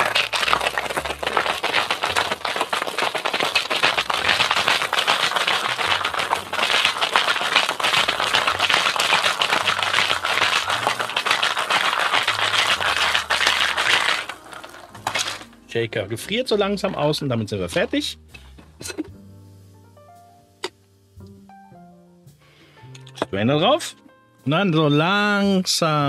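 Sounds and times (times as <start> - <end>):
ice rattling in cocktail shaker: 0.0 - 15.6.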